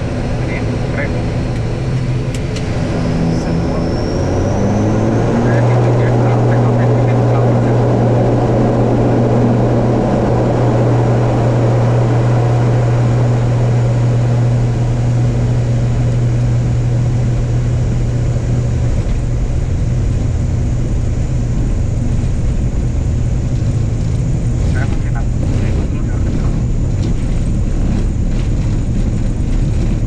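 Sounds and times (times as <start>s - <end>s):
turboprop propeller drone: 0.0s - 30.0s.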